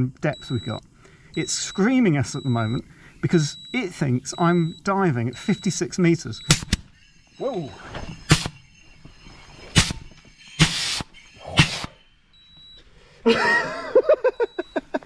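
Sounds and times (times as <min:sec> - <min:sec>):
pressure relief valve hissing: 0:06.4 - 0:08.6, 0:09.5 - 0:12.0
short high beep: 0:07.4 - 0:08.7.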